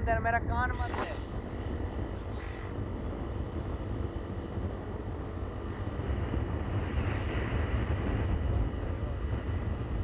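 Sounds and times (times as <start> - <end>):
road noise: 0.0 - 10.0
wind on microphone: 0.0 - 10.0.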